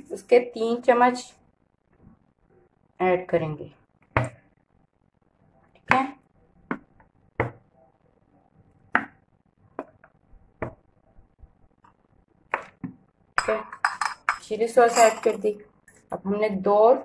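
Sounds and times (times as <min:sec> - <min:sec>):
spoon and bowl taps and clicks: 0:13.4 - 0:15.3.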